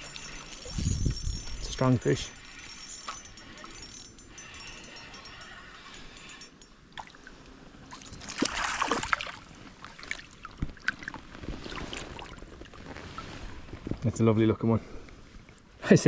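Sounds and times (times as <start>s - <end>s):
fishing reel whirring: 0.0s - 6.7s
fish splashing in water: 8.0s - 12.4s.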